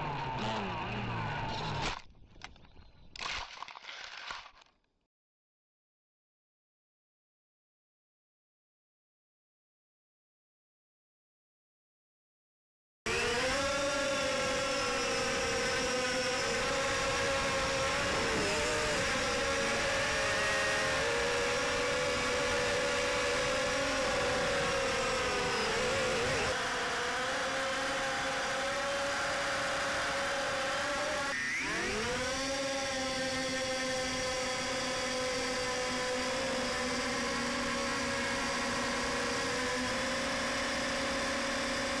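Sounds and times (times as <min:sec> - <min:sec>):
quadcopter motors whining: 0:00.0 - 0:02.6, 0:13.1 - 0:42.0.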